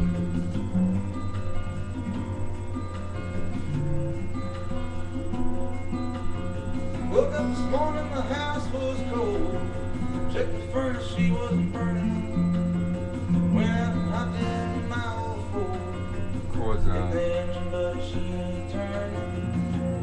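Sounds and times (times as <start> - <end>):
acoustic guitar strumming: 0.0 - 20.0
person singing wordlessly: 7.1 - 12.5, 13.4 - 19.6.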